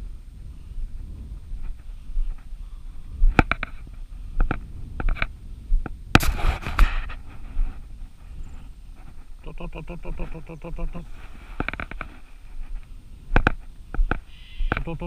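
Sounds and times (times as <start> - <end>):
scraping rustle: 6.2 - 9.4, 11.0 - 14.3
footsteps through grass: 10.9 - 15.0.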